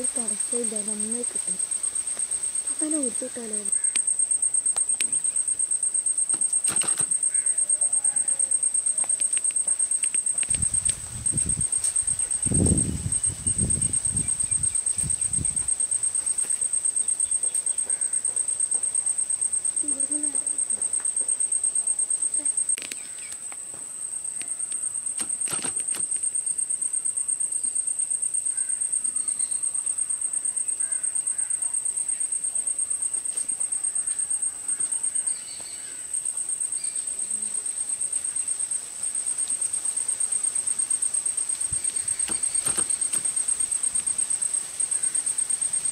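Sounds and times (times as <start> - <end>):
insect trilling: 0.0 - 45.9
faint clicks: 9.0 - 11.0.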